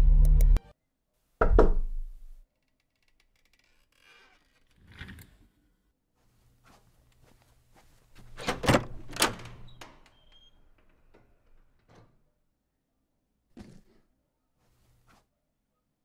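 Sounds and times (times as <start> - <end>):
knocks on interior door: 1.4 - 1.9.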